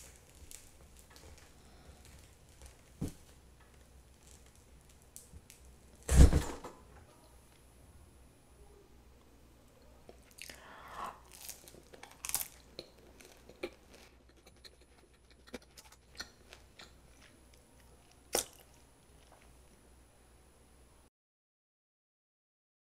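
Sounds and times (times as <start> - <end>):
bread crunching: 0.0 - 6.4, 10.1 - 19.5.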